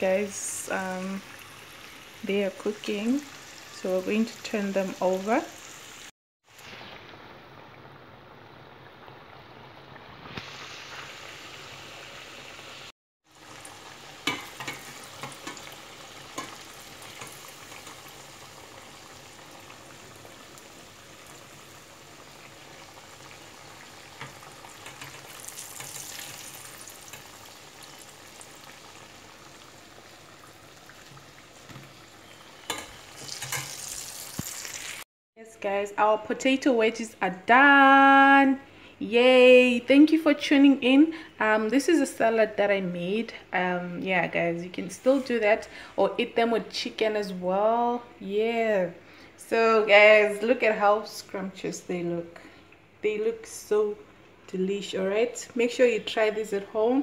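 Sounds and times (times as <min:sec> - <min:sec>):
deep-frying sizzling and bubbling: 0:00.0 - 0:35.1
metal spoon clinking on pot: 0:32.6 - 0:33.8.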